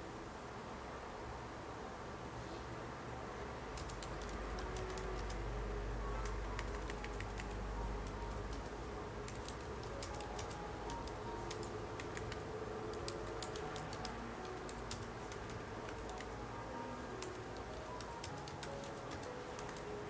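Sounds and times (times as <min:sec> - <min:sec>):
typing on laptop keyboard: 0:03.8 - 0:16.4, 0:17.1 - 0:20.0.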